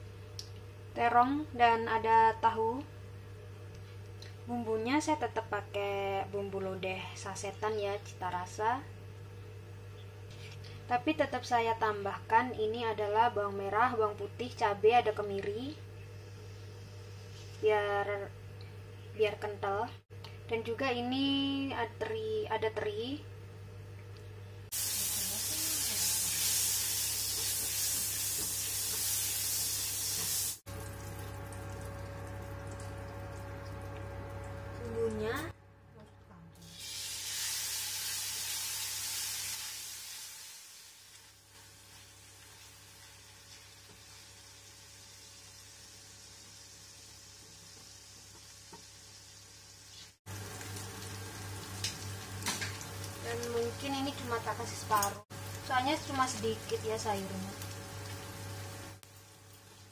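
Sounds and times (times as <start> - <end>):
steady hum with thin tone: 0.0 - 26.4
food sizzling in hot oil: 24.7 - 34.8, 36.6 - 59.9.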